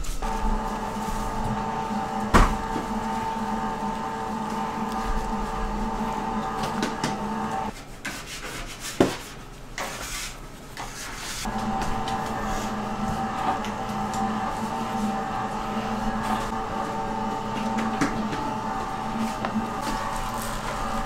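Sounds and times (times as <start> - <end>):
electric motor humming: 0.2 - 7.7, 11.5 - 21.0.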